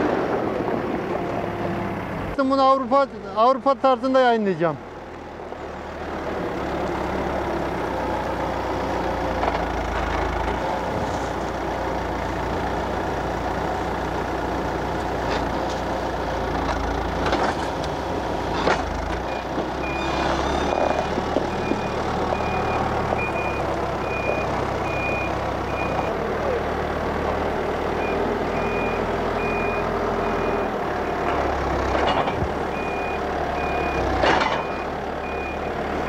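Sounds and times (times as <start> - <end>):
diesel engine running under load: 0.0 - 36.0
reversing alarm beeping: 19.3 - 26.2, 28.0 - 31.3, 32.7 - 35.8.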